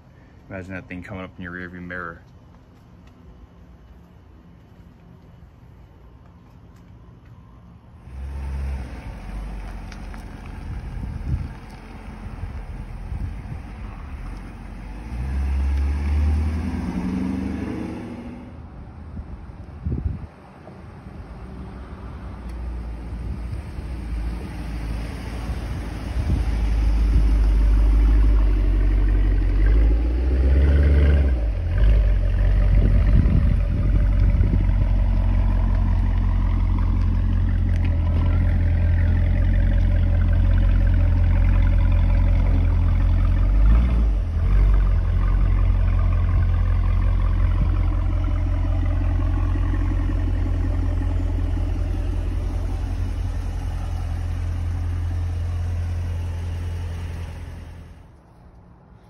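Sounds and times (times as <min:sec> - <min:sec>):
deep exhaust note of car engine: 0:23.2 - 0:58.0.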